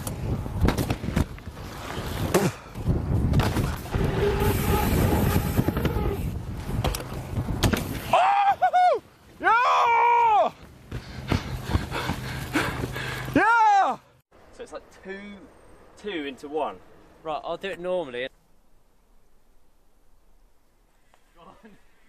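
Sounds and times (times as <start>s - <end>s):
rumbling outdoor noise: 0.0s - 22.0s
person yelling triumphantly: 13.4s - 14.0s.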